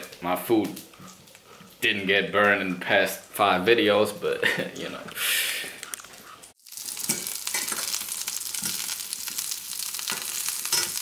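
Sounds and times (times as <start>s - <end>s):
food sizzling in a pan: 6.5s - 11.0s
metal tongs scraping a pan: 7.0s - 8.0s, 10.1s - 11.0s.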